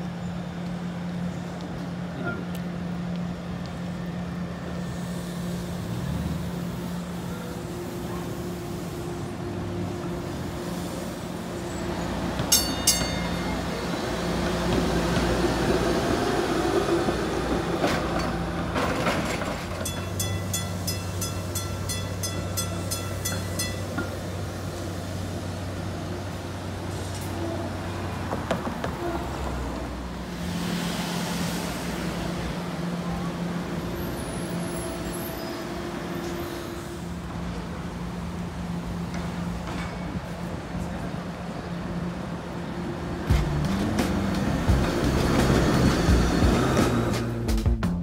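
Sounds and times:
short dings: 12.5 - 13.6.

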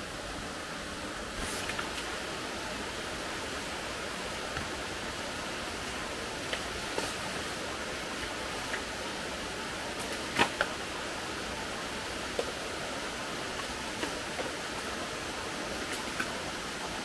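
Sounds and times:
forest stream rushing: 0.0 - 17.0.

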